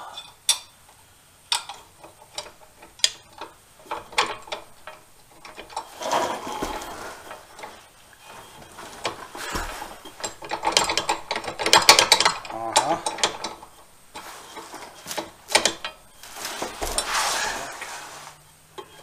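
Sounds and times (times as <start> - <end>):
metal parts knocking: 1.5 - 17.1.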